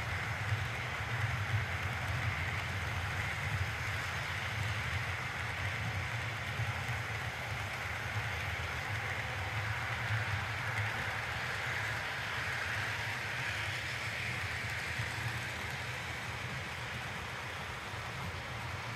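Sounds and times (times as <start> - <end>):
model train wheels on rails: 0.0 - 18.9.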